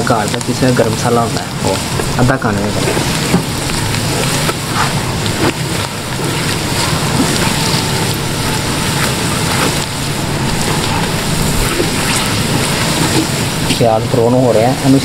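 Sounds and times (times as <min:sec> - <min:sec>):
onions sizzling in hot fat: 0:00.0 - 0:15.0.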